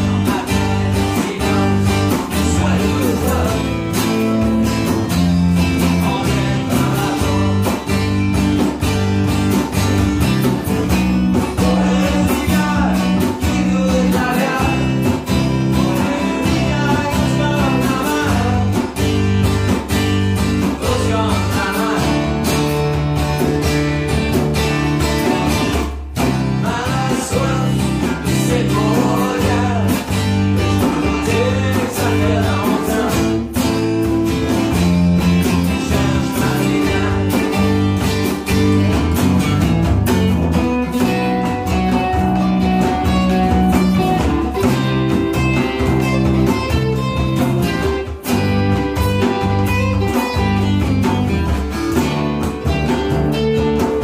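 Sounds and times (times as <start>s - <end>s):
acoustic bass guitar: 0.0s - 54.0s
acoustic guitar: 0.0s - 54.0s
djembe hand drum: 29.0s - 54.0s.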